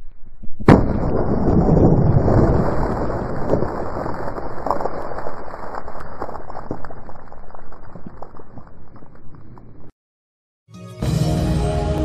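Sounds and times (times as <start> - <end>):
wind rumbling on microphone: 0.0 - 9.9
small crackles and clicks: 3.2 - 9.9.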